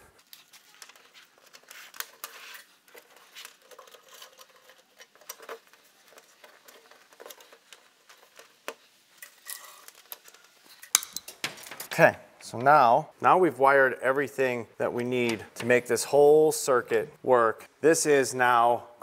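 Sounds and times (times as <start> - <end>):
electrical wire clicking and rustling: 0.0 - 12.8.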